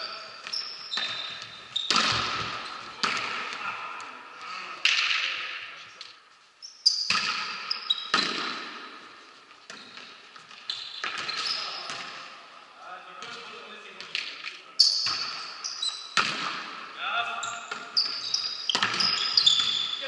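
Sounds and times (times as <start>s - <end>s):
shoes squeaking on court floor: 0.0s - 3.7s, 6.0s - 12.4s, 13.2s - 16.4s, 17.4s - 20.0s
echoing volleyball strikes: 0.0s - 5.8s, 6.9s - 20.0s.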